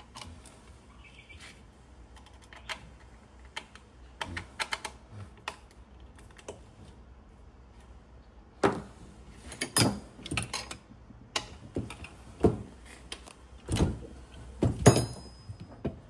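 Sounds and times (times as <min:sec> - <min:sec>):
metal parts clattering on workbench: 0:14.8 - 0:16.0.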